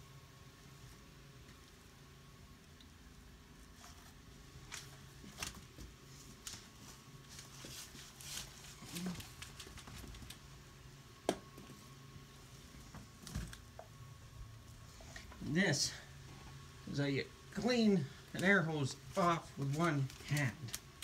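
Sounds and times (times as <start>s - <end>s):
low steady hum: 0.0s - 21.0s
rustles and clicks of handling: 3.6s - 10.5s, 17.6s - 21.0s.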